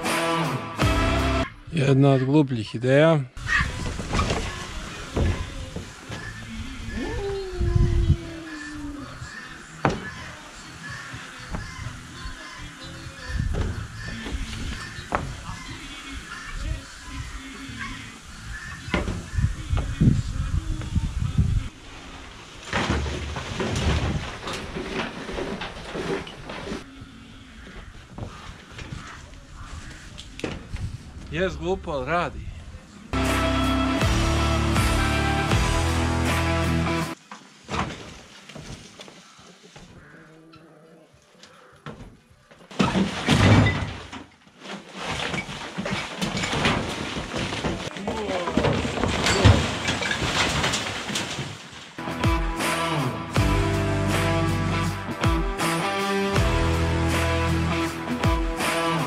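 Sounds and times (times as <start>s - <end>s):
debris clattering into metal trailer: 22.0s - 26.8s, 42.7s - 52.0s.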